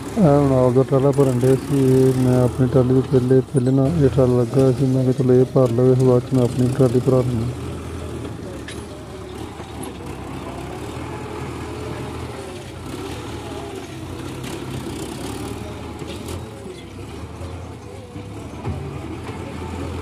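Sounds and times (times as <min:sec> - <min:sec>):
loader scooping sand: 0:00.0 - 0:20.0
tractor diesel engine running: 0:00.0 - 0:20.0.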